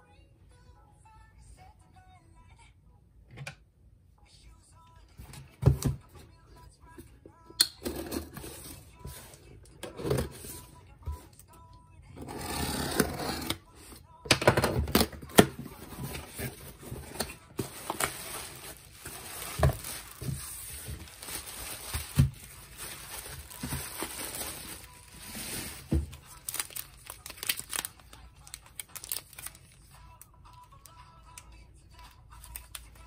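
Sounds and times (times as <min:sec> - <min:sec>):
box cutter slicing tape: 0:12.3 - 0:13.6
bubble wrap rustling: 0:15.6 - 0:31.0
cellophane crinkling: 0:15.7 - 0:31.0.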